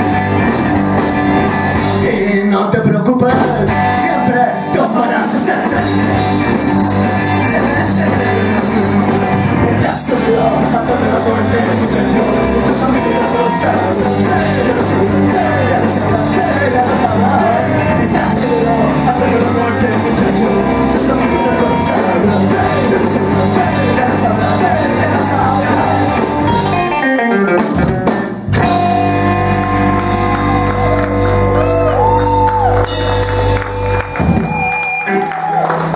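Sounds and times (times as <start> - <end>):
rock band playing: 0.0 - 2.4, 3.2 - 35.9
lead singer singing: 1.7 - 27.2.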